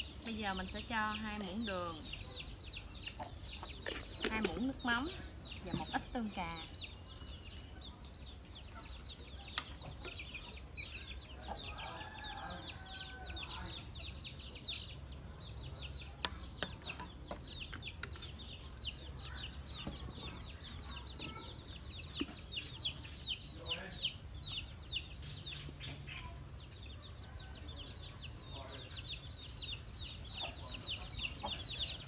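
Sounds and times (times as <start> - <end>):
chicks peeping: 0.0 - 32.0
hens clucking: 29.8 - 32.0.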